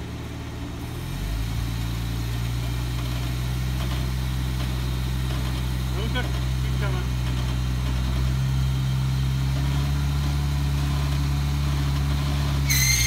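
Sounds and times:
engine running at low revs: 0.0s - 13.0s.

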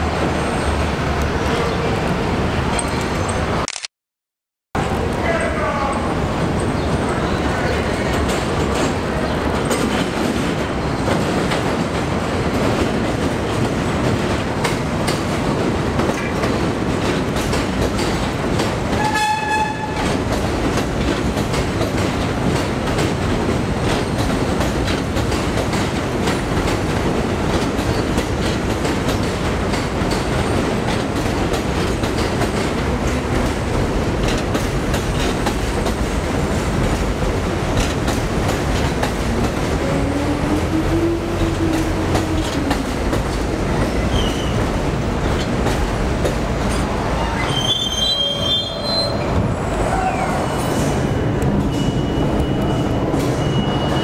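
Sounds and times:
train rumbling over tracks: 0.0s - 3.6s, 4.8s - 54.0s
short high train horn: 19.0s - 20.0s, 39.8s - 42.0s.

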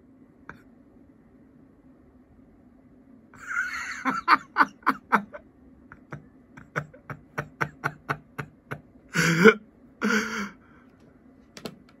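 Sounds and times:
person laughing: 3.4s - 10.6s.

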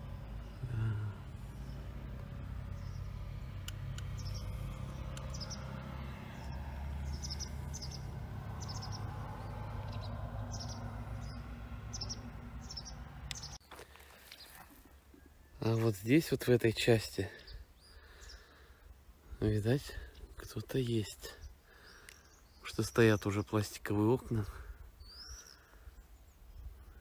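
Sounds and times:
songbird chirping: 0.0s - 27.0s.

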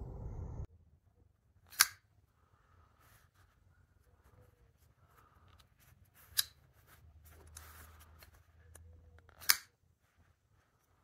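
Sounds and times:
folding knife blade clicking: 1.7s - 2.0s, 9.4s - 9.7s.

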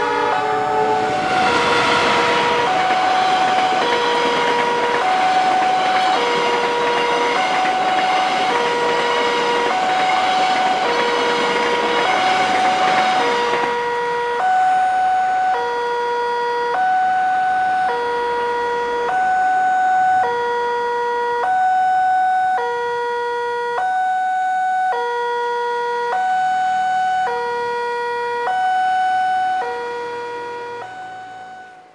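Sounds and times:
two-tone crossing alarm: 0.0s - 31.9s.

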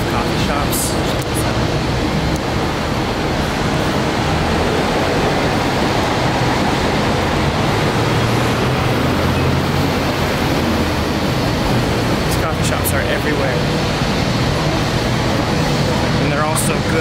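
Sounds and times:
traffic roar: 0.0s - 17.0s.

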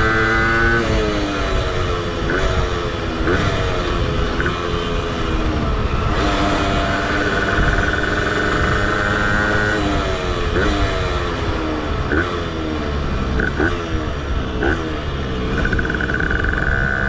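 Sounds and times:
moped two-stroke engine revving: 0.0s - 17.0s
wind rumble: 0.0s - 17.0s
high whine: 4.0s - 10.2s, 12.8s - 17.0s.

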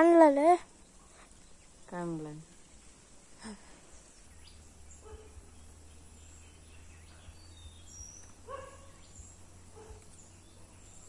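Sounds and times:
low steady rumble: 0.5s - 11.0s
high bird chirps: 4.1s - 11.0s.

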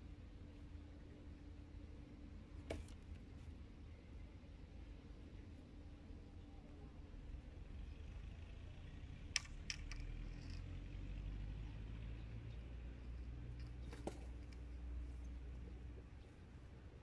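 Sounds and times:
low steady rumble: 0.0s - 17.0s
clicks and knocks of tackle: 9.3s - 10.7s, 13.0s - 15.3s.

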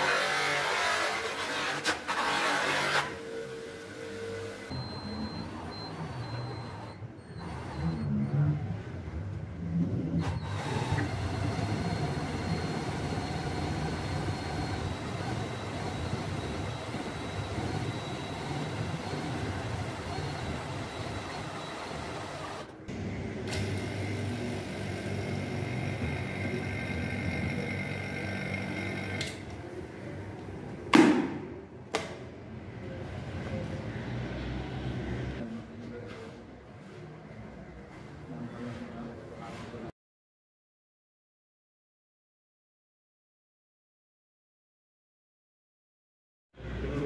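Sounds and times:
motorised spindle drone: 10.2s - 22.7s, 23.4s - 29.4s
sharp loud knock: 30.9s - 32.1s.

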